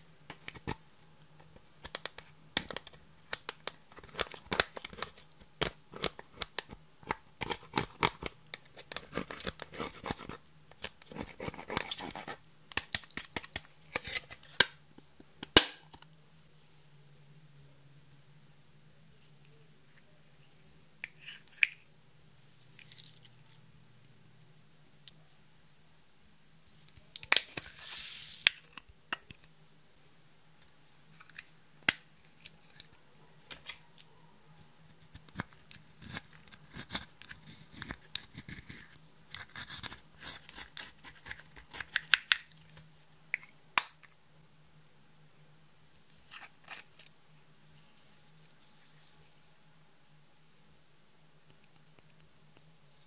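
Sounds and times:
plastic spatula scraping eyeshadow: 7.4 - 12.4, 35.0 - 42.1
foam beads poured into plastic tub: 27.6 - 28.6.

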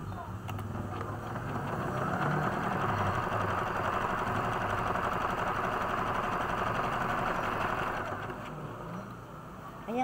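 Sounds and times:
sewing machine stitching: 0.6 - 8.6.

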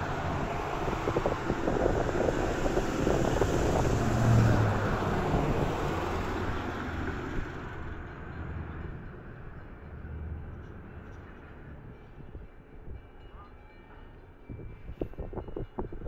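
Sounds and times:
wind buffeting microphone: 0.0 - 6.7, 14.5 - 16.0
low engine hum: 0.0 - 8.8
road traffic: 0.0 - 13.0.

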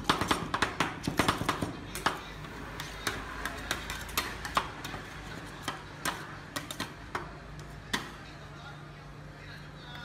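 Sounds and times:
metal spatulas tapping on steel plate: 0.0 - 7.3.

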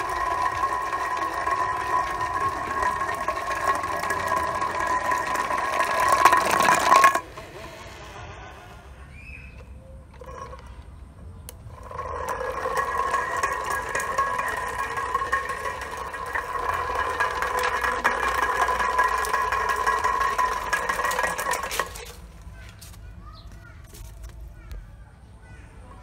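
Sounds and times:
toy car electric motor whining: 0.0 - 10.9, 11.5 - 22.2
tin wheels rattling on concrete: 0.0 - 24.7.

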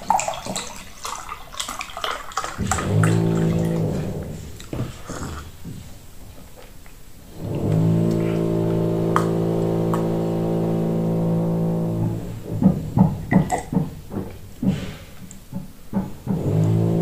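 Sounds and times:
gulps of swallowing a drink: 2.3 - 5.8
low steady humming: 2.6 - 14.6, 16.2 - 17.0.

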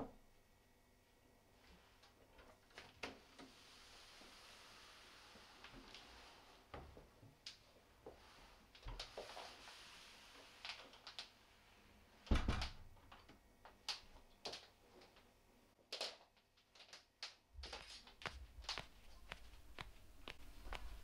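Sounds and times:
door thumping against frame: 12.3 - 12.8.

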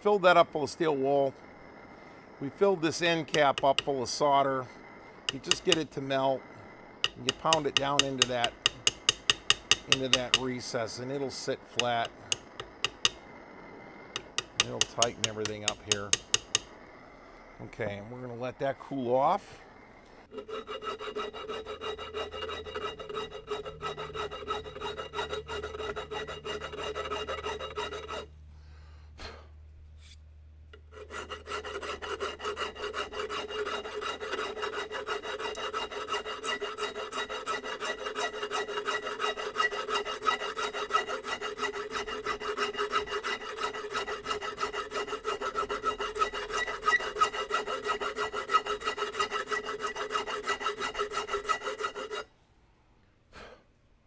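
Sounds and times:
hand file scraping metal: 2.6 - 4.5, 5.2 - 13.2, 14.2 - 16.8, 20.3 - 28.3, 30.8 - 52.3.

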